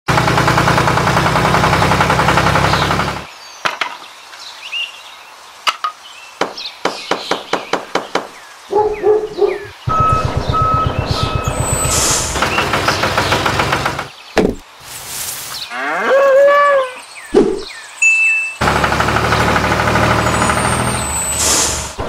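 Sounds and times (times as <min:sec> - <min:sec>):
birds chirping: 0:02.5 - 0:18.6
reversing beep: 0:09.9 - 0:12.6.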